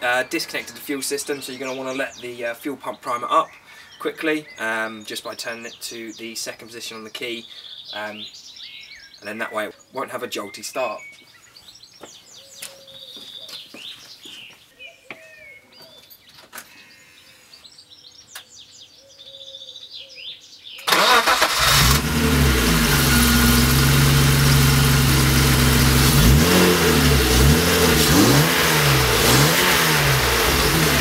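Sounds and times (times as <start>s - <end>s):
birds chirping: 0.0s - 31.0s
car engine starting and revving: 20.9s - 31.0s.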